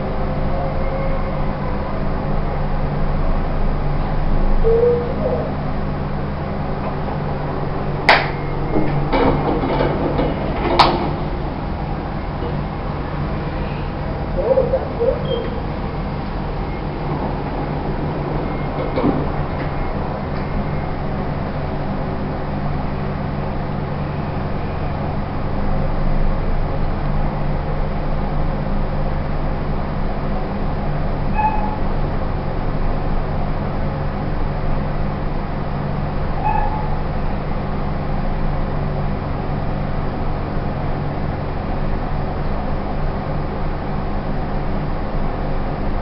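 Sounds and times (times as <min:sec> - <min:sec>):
lift car hum and rumble: 0:00.0 - 0:46.0
elevator doors sliding open: 0:06.6 - 0:22.6.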